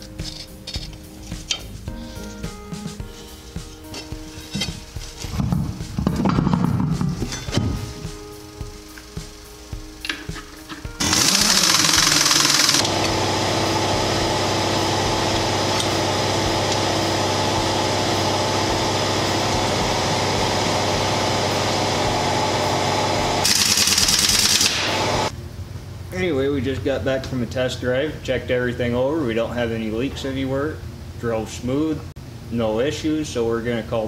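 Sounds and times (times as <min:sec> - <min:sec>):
air wrench hissing rattle: 0:00.0 - 0:05.4, 0:10.0 - 0:13.2, 0:20.9 - 0:25.3.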